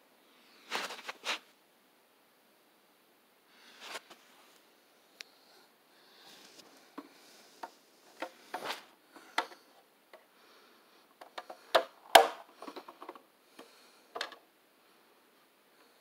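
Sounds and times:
soft rubbing: 0:00.6 - 0:01.5
toy trailer clicks and knocks: 0:11.2 - 0:13.2, 0:14.2 - 0:14.4.

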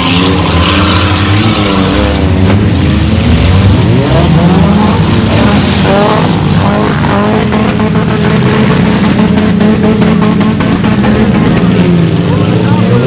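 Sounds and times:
race car engines revving: 0:00.0 - 0:13.0.

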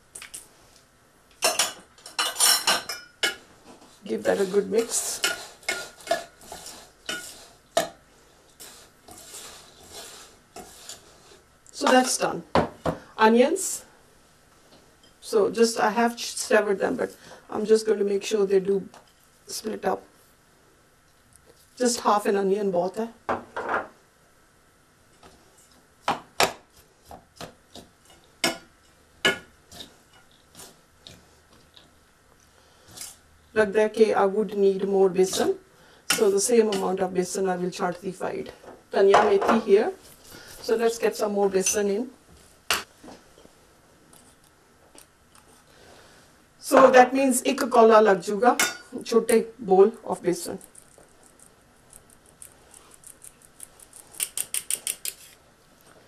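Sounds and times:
metal spatula scraping metal bowl: 0:04.1 - 0:07.6, 0:08.6 - 0:11.4.

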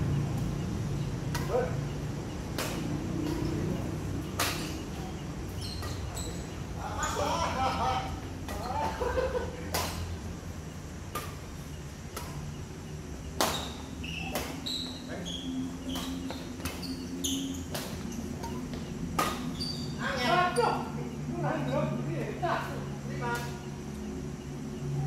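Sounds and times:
racket hitting shuttlecock: 0:01.3 - 0:01.7, 0:02.5 - 0:05.2, 0:09.7 - 0:10.2, 0:11.1 - 0:11.5, 0:13.4 - 0:14.6, 0:15.8 - 0:17.0, 0:17.7 - 0:19.6.

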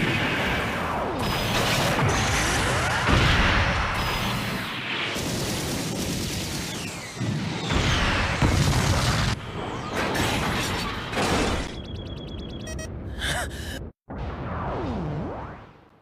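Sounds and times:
rumbling explosions: 0:00.0 - 0:11.8, 0:14.1 - 0:15.8
electronic beeps: 0:11.4 - 0:13.2.

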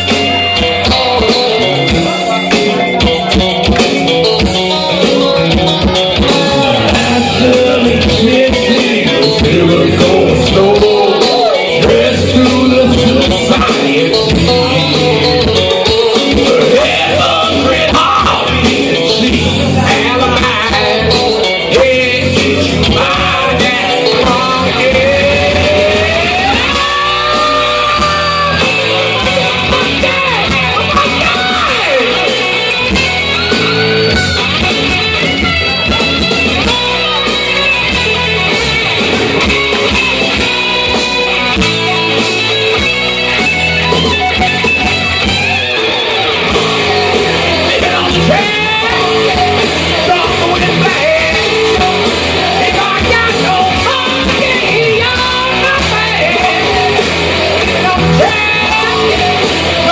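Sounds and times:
man singing karaoke: 0:00.0 - 0:04.2, 0:04.9 - 0:34.2, 0:46.4 - 0:59.9
rock backing track with electric guitar: 0:00.0 - 0:59.9.

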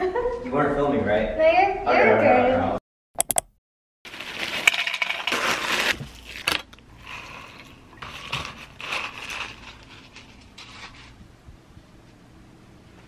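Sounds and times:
cereal rattling into plastic cup: 0:04.1 - 0:06.6
plastic crinkling: 0:04.1 - 0:11.0.

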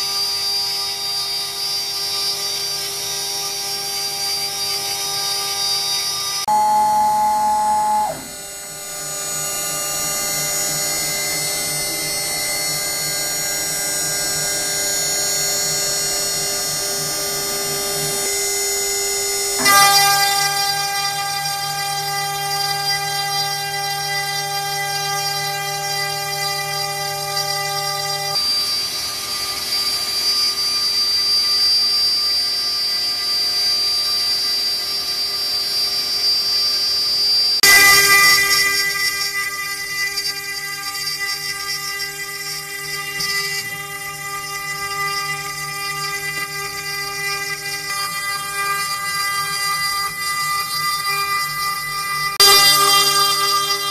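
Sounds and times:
cnc router motor whine: 0:00.0 - 0:53.9
shop vacuum rushing: 0:06.5 - 0:09.0.

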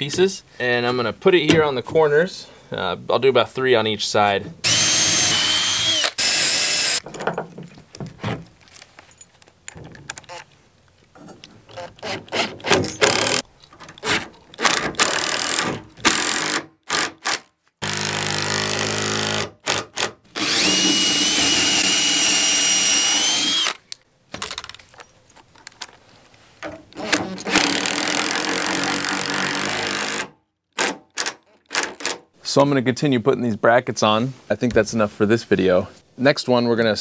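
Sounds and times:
impact driver driving bolts: 0:12.1 - 0:13.4.

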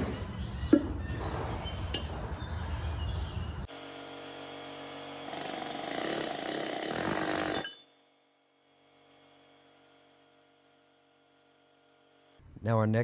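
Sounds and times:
power tool running: 0:03.6 - 0:12.4.

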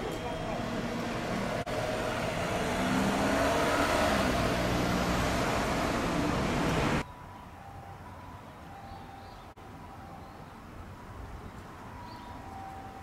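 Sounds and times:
car passing close by: 0:00.8 - 0:07.0.

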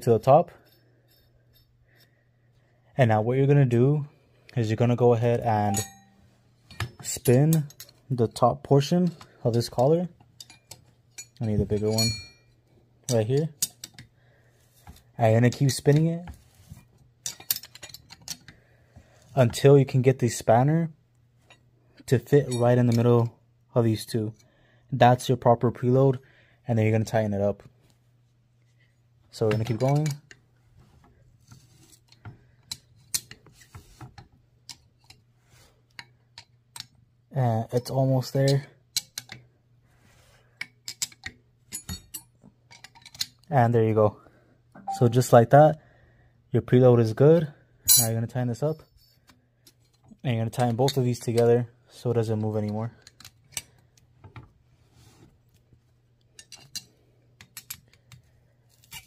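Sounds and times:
metallic clicks of spanner wrench: 0:35.9 - 0:37.0, 0:37.8 - 0:39.4, 0:40.6 - 0:43.5, 0:56.4 - 0:58.2.

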